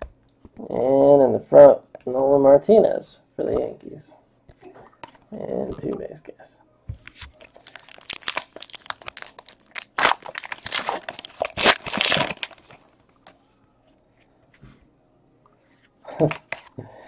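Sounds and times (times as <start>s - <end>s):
foil wrapper tearing and crinkling: 7.1s - 12.8s.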